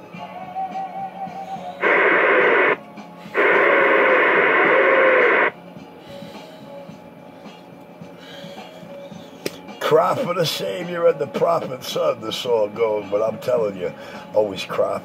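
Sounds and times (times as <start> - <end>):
radio static bursts: 1.8 - 2.8, 3.4 - 5.5.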